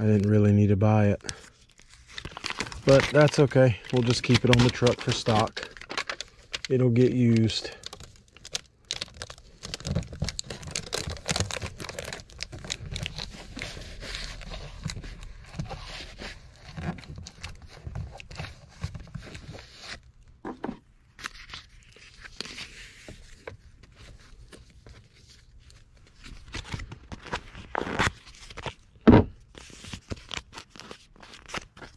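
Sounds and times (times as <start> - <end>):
foil crinkling and scraping: 1.0 - 20.1
foil tape tearing and peeling: 1.8 - 15.3, 27.6 - 28.8.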